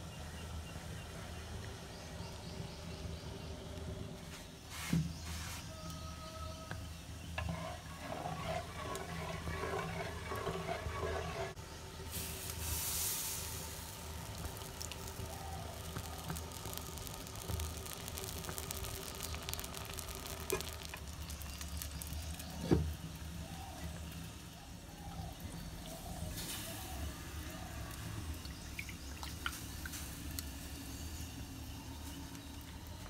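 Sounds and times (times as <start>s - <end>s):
batter sizzling in a pan: 12.1s - 32.9s.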